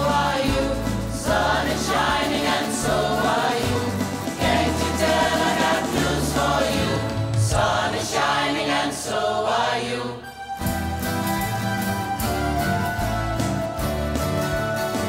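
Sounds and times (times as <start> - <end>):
strummed acoustic guitars: 0.0 - 7.9, 10.5 - 15.0
women singing together: 0.0 - 10.2.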